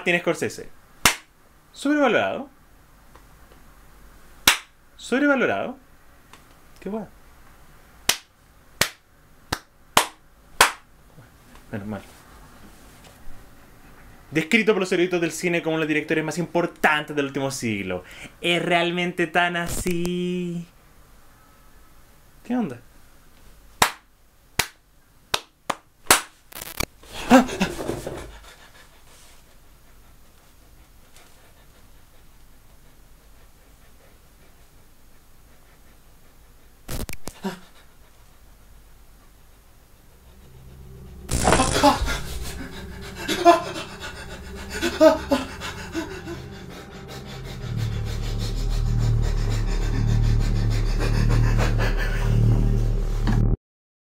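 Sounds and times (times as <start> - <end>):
sharp smacks: 1.0 - 1.3, 4.5 - 4.7, 8.1 - 10.8
low steady hum: 27.0 - 53.5
man grunting and breathing heavily: 40.2 - 53.2
man's wordless vocal sound: 41.4 - 52.8.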